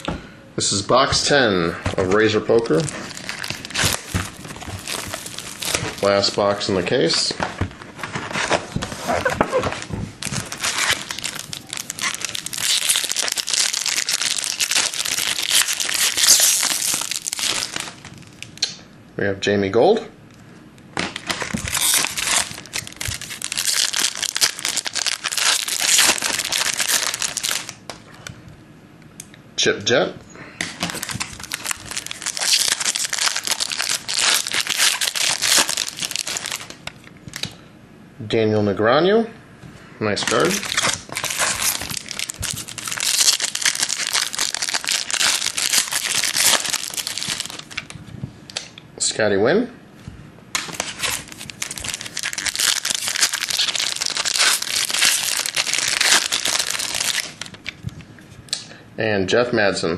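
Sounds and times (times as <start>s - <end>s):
foil wrappers crinkling: 2.0s - 18.7s, 21.0s - 27.9s, 30.8s - 37.5s, 40.2s - 48.0s, 50.6s - 57.8s.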